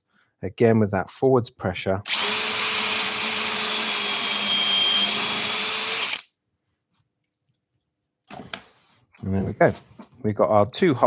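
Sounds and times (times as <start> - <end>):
power drill boring into wood: 2.1 - 6.3.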